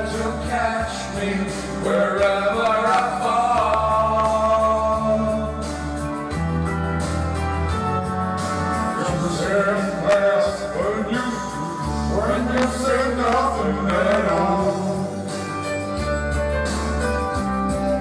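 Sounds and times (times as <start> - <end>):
men singing into microphones: 0.0 - 5.8, 8.9 - 15.7
recorded backing track: 0.0 - 18.0.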